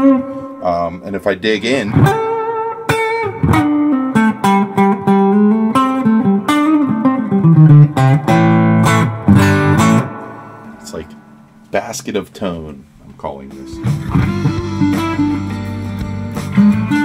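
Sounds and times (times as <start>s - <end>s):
overdriven electric guitar lead: 0.0s - 0.6s, 1.9s - 11.6s, 13.7s - 17.0s
strummed guitar chords: 0.0s - 12.2s, 13.1s - 17.0s.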